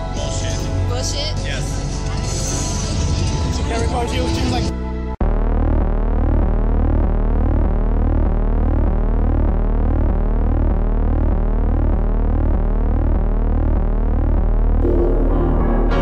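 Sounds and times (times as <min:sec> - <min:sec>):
throbbing low synth drone: 0:04.4 - 0:16.0
sliding synth tones: 0:05.4 - 0:16.0.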